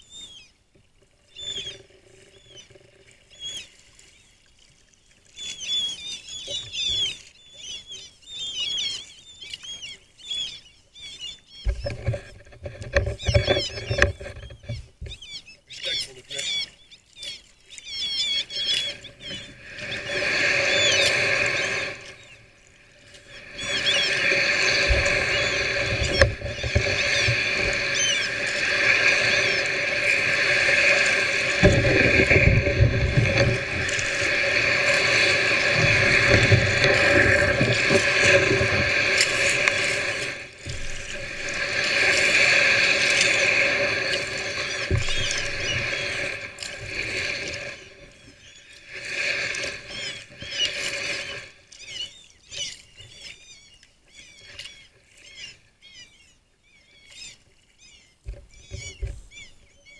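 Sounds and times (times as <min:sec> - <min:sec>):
kayak hull scraping over stones: 0:11.7 - 0:15.3, 0:18.4 - 0:53.6.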